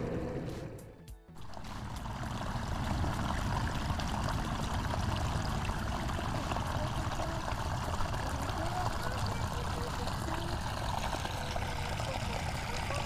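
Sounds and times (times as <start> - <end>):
water pouring into a pool: 1.4 - 13.0.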